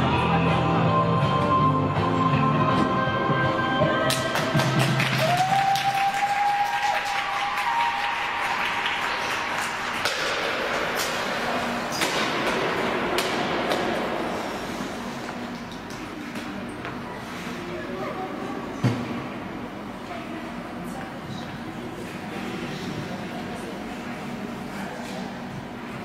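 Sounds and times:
audience clapping: 0:04.1 - 0:10.2.

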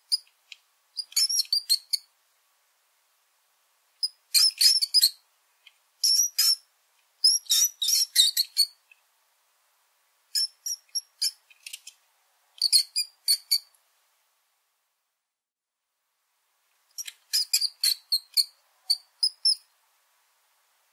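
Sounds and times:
rats squeaking: 0:01.0 - 0:02.1, 0:04.0 - 0:05.2, 0:06.0 - 0:06.6, 0:07.2 - 0:08.8, 0:10.4 - 0:11.9, 0:12.6 - 0:13.7, 0:16.9 - 0:19.6.

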